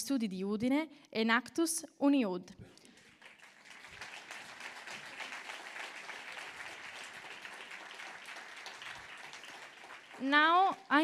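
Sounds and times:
audience applauding: 2.8 - 10.8.

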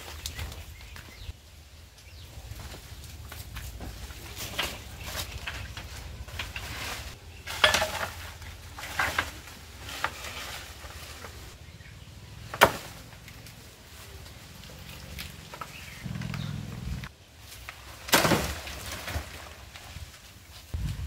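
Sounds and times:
leaves rustling: 0.0 - 21.0
low steady rumble: 10.7 - 17.1, 20.8 - 21.0
sharp crack of plant cut: 12.5 - 13.5, 18.0 - 19.4.

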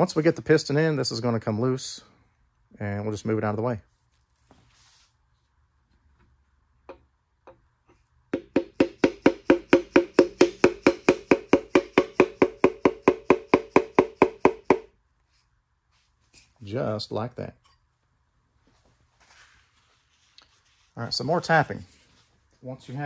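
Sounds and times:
hammer tapping piston with ringing: 8.4 - 14.9.

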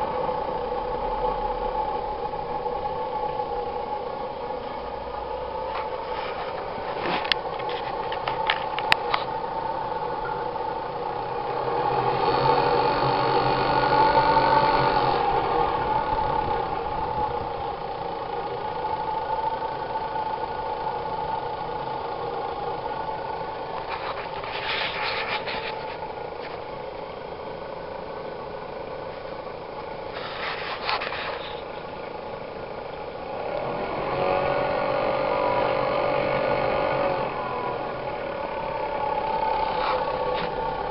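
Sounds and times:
small engine running: 0.0 - 40.9.

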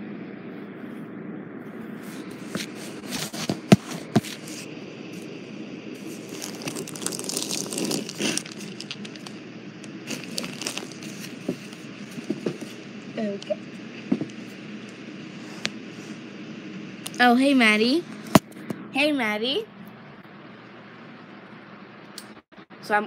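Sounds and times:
rustling and crinkling: 2.1 - 5.3, 6.0 - 12.9.

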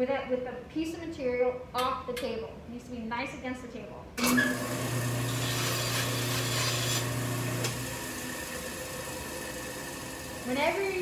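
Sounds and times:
band saw rasping through wood: 4.3 - 7.8.

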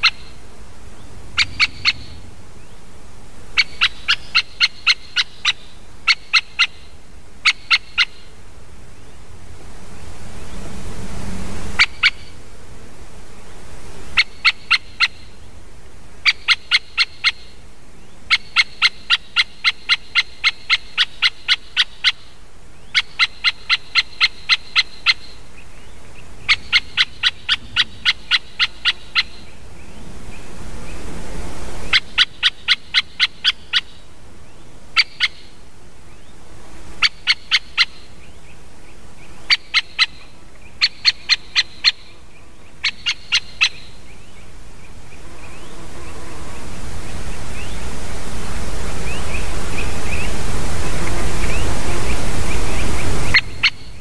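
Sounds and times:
woodpecker sharp calls: 0.0 - 0.3, 1.4 - 2.2, 3.6 - 8.3, 11.8 - 12.3, 14.2 - 15.3, 16.2 - 17.5, 18.3 - 25.4, 26.4 - 29.5, 31.9 - 34.0, 35.0 - 35.5, 37.0 - 38.1, 39.5 - 42.1, 42.8 - 44.0, 53.2 - 54.0
wind in trees: 0.0 - 54.0.

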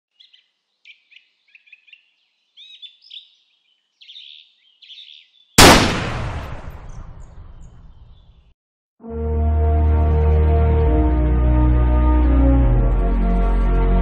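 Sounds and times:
small birds chirping: 0.1 - 5.6, 7.6 - 8.5
loud gunshot with echo: 5.6 - 8.0.

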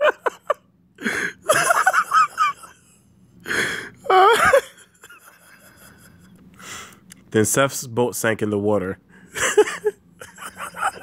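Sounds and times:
man laughing breathily: 0.0 - 6.8, 9.2 - 11.0.

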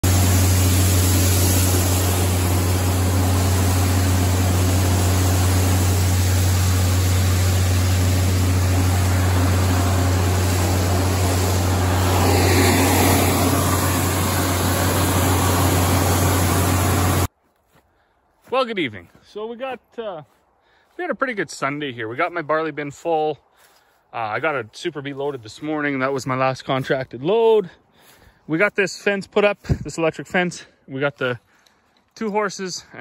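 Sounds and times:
loud steady machine hum: 0.0 - 17.3
rush of air and grain: 0.0 - 17.3.

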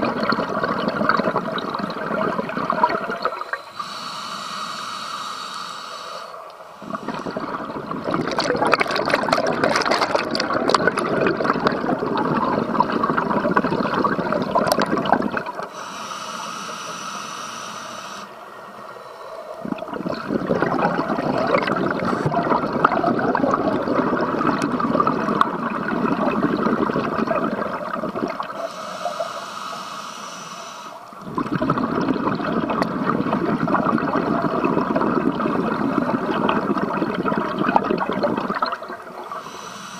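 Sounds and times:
bubbling underwater exhalations: 0.0 - 3.6, 6.8 - 15.7, 19.6 - 28.7, 31.1 - 39.6
regulator hissing inhalation: 3.4 - 7.7, 15.7 - 18.3, 28.5 - 31.2, 39.2 - 39.9.

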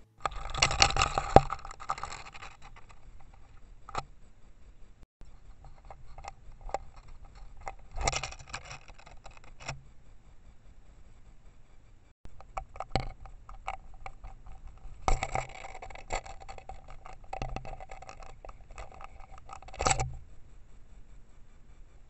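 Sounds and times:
bird pecking on plastic housing: 0.1 - 4.0, 5.6 - 9.8, 12.4 - 20.1.

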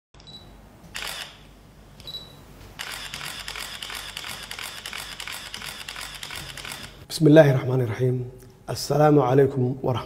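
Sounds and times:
camera beep: 0.2 - 1.4, 2.0 - 7.0
camera shutter clicks: 0.9 - 1.4, 2.8 - 7.0.

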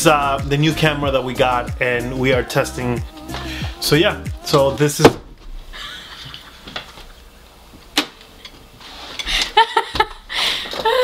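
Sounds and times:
loud bang: 5.0 - 5.7
woman laughing: 5.7 - 7.0, 9.3 - 11.0.

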